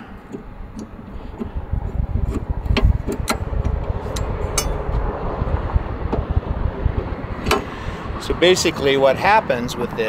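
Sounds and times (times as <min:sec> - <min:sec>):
steady low rumble: 0:00.0 - 0:10.0
metal crank handle clanking: 0:00.2 - 0:04.9.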